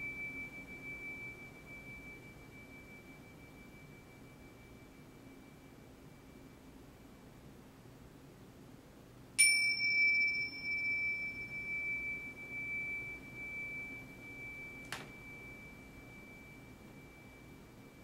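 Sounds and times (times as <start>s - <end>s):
bells ringing: 9.4s - 17.6s.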